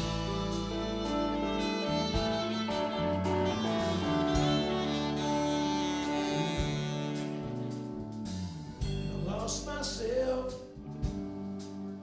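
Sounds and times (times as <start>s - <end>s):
electric guitars: 0.0s - 8.2s
wavering lead guitar line: 0.0s - 8.2s
drum beat with cymbals: 0.0s - 9.5s.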